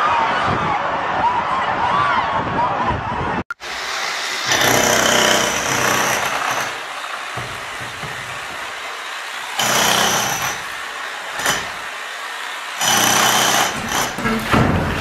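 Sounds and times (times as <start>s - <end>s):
demolition hammer chiselling concrete: 4.2s - 15.0s.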